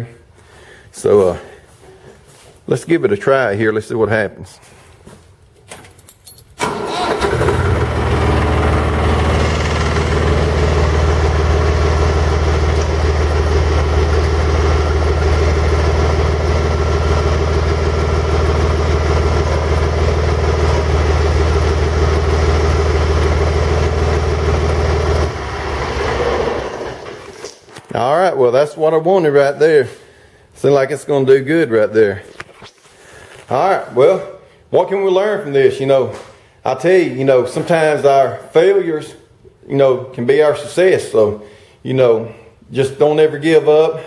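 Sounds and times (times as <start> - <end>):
tractor engine starting and running: 6.6 - 27.7.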